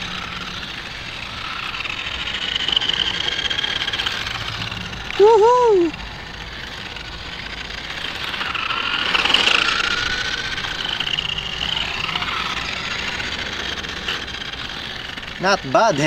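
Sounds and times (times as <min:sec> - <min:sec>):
toy car motor whining: 0:00.0 - 0:16.0.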